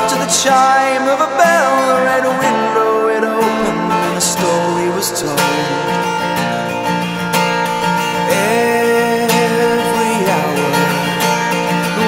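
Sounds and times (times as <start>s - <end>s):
acoustic guitar strumming: 0.0s - 12.0s.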